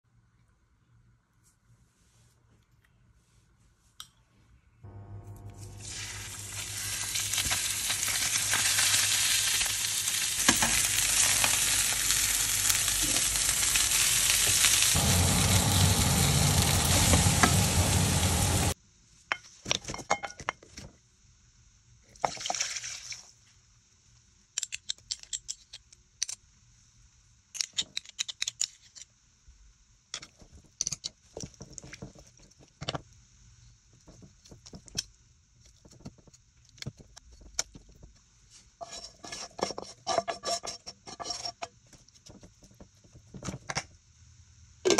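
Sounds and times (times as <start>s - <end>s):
chicken sizzling in frying pan: 5.6s - 18.8s.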